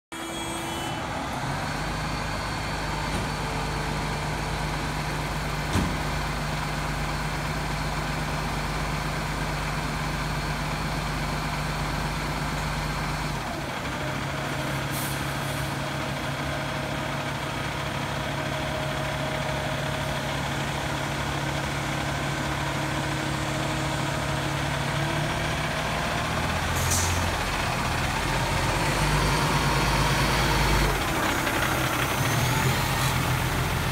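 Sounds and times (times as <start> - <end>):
diesel engine idling: 0.8 - 33.9
air brake hisses: 14.7 - 15.8, 26.8 - 27.3.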